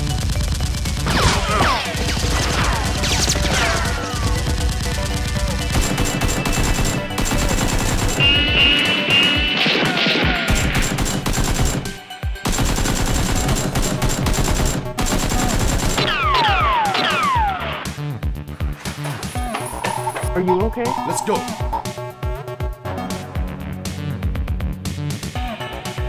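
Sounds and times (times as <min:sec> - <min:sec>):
automatic gunfire: 0:00.0 - 0:08.4, 0:09.6 - 0:17.4
background music: 0:00.0 - 0:26.0.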